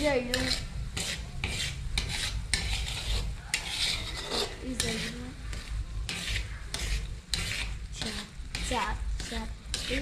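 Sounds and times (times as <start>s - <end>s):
utensil scraping in a pot: 0.0s - 10.0s.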